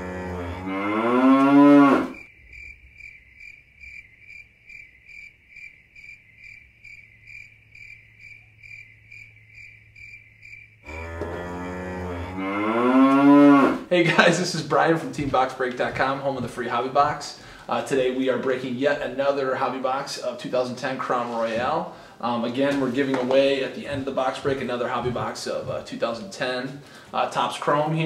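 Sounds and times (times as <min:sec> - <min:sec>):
low rising moo-like call: 0:00.0 - 0:02.2, 0:10.8 - 0:13.9.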